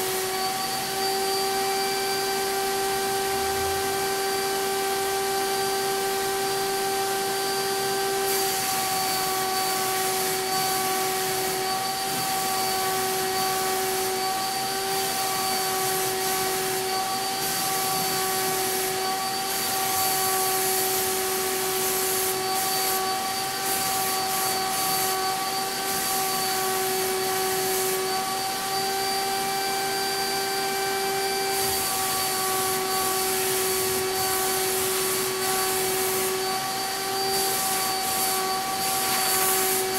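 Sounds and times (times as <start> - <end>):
turbine sprayer whine: 0.0 - 39.9
air hissing from spray gun: 8.0 - 39.9.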